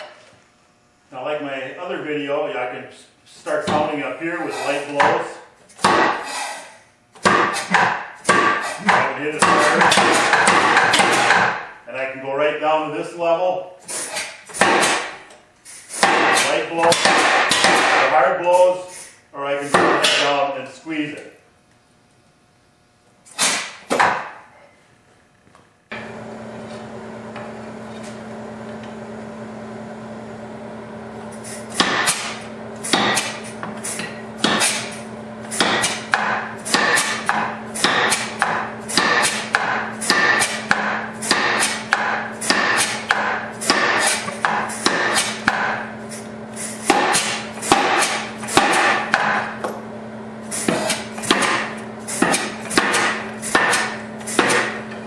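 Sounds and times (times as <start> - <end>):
steady hum: 0.0 - 55.0
power hammer striking hot steel: 5.8 - 6.4, 7.2 - 11.7, 14.0 - 15.2, 16.0 - 18.2, 23.3 - 24.4, 31.7 - 33.4, 34.0 - 45.9, 46.8 - 49.6, 50.5 - 54.8.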